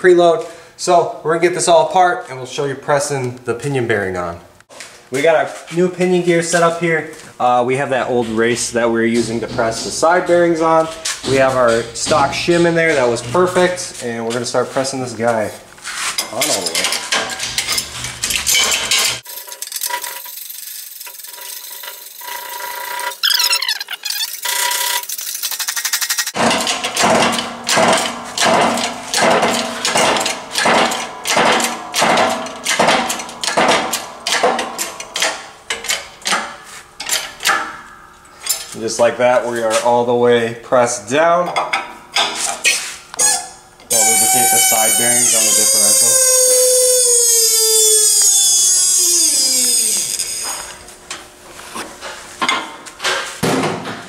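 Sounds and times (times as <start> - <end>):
metal clicks and clanks: 16.2 - 22.8, 24.1 - 38.8
hydraulic press squealing: 16.4 - 26.4, 42.6 - 50.8
hydraulic jack pumping strokes: 43.2 - 50.8.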